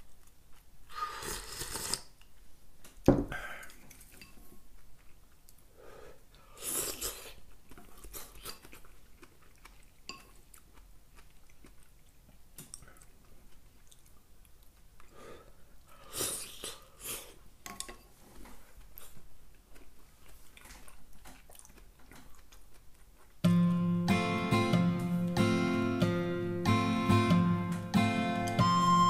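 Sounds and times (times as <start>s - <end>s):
person slurping soup: 0.9s - 2.2s, 6.4s - 7.4s
chewing: 3.6s - 5.7s, 6.3s - 23.4s.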